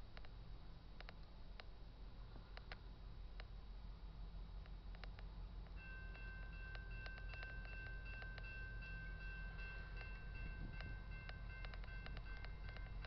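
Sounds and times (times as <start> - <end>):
faint clicks: 1.0 - 1.7, 4.6 - 8.5, 10.8 - 13.0
railroad crossing bell ringing: 5.8 - 13.0.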